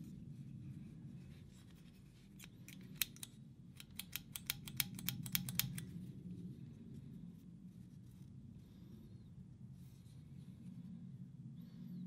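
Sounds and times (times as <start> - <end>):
locking pliers clicking: 2.4 - 5.9.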